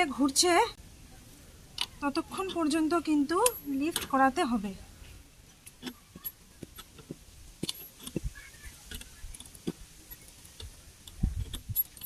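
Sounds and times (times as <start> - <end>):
car jack metallic ticks and clicks: 3.4 - 4.2.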